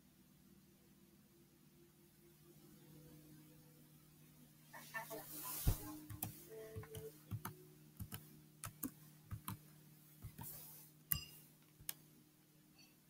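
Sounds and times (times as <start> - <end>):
low steady hum: 0.0 - 13.0
keyboard keys clicking: 6.1 - 9.6.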